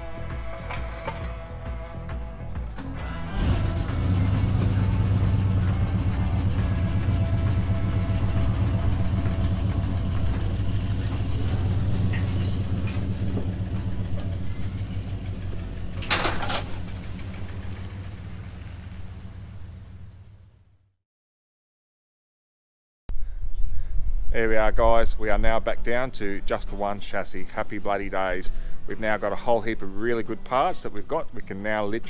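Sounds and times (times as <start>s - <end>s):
vehicle engine running: 0.0s - 20.9s
short loud rattle: 15.9s - 19.2s.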